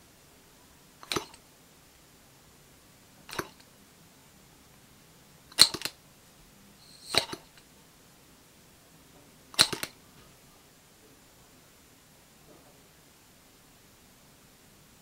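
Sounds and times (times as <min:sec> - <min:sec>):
model engine metallic clicks: 0:01.0 - 0:01.4, 0:03.3 - 0:03.7, 0:05.5 - 0:06.0, 0:06.9 - 0:07.6, 0:09.6 - 0:10.0.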